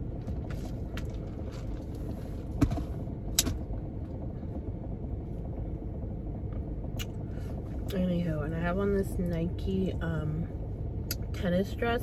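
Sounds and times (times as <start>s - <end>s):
car cabin rumble: 0.0s - 12.0s.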